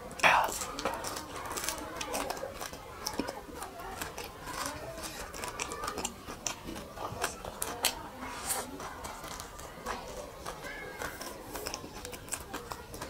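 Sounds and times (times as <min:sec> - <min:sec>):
person chewing and lip-smacking: 0:00.1 - 0:13.0.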